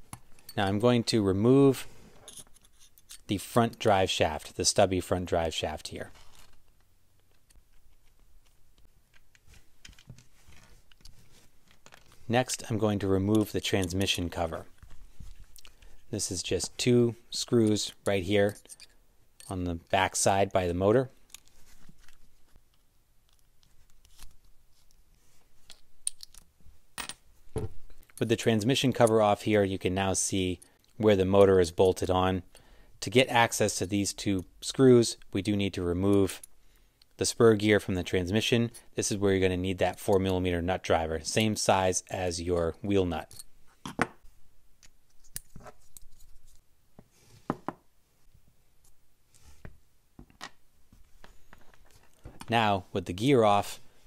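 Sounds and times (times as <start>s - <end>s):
screwdriver clicks and scrapes: 2.2s - 3.3s.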